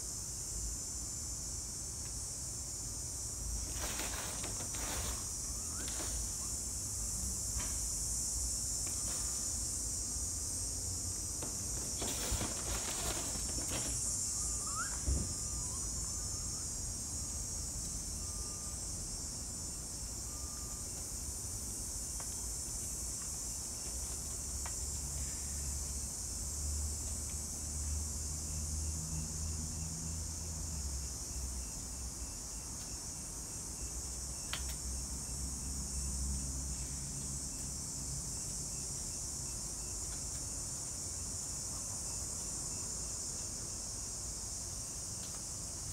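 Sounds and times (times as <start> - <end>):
crickets chirring: 0.0 - 45.9
brief rustle: 3.6 - 6.4, 11.7 - 14.1.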